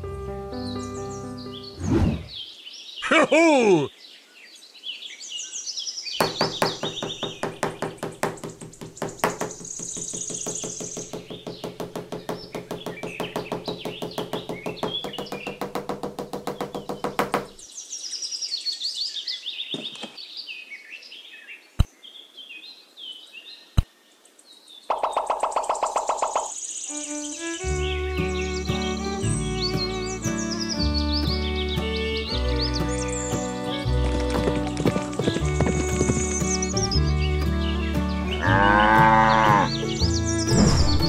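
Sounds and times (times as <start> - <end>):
birds chirping: 0.5 - 41.0
sharp knocks: 6.2 - 17.6, 34.3 - 36.9.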